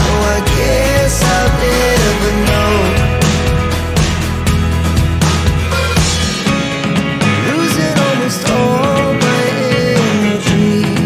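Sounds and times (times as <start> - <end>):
music with bass and beat: 0.0 - 11.0.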